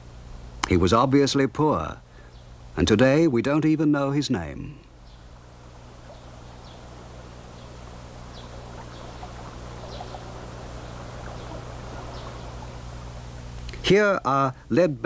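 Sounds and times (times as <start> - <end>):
low hum: 4.4 - 14.7.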